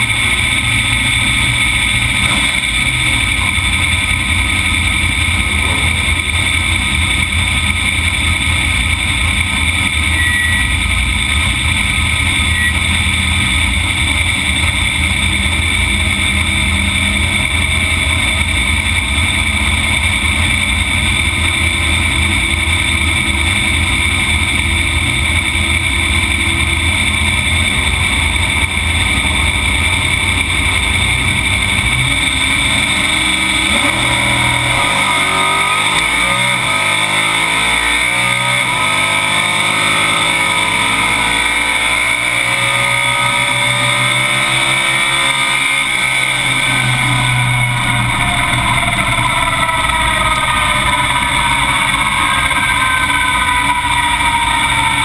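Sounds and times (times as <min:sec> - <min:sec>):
truck engine revving: 0:00.0 - 0:55.0.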